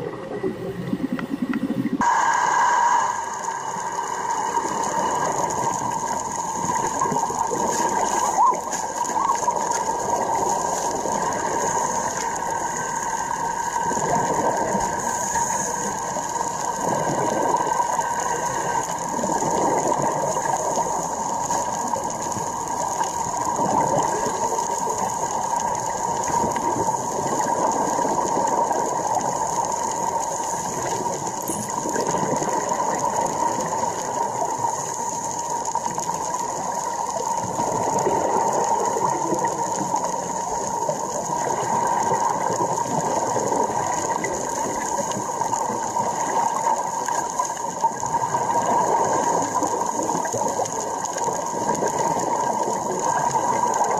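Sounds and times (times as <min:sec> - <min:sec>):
steady high whine: 0:00.0 - 0:25.0, 0:30.3 - 0:33.2
underwater rushing noise: 0:00.0 - 0:53.9.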